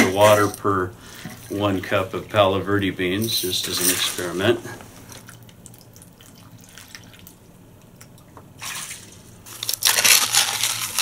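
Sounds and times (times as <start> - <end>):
water pouring: 5.1 - 7.4.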